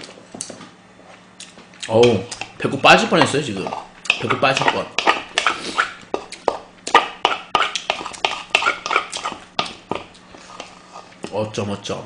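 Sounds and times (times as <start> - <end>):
wet chewing: 1.4 - 2.6, 3.2 - 10.8
chopsticks tapping a bowl: 2.0 - 11.4.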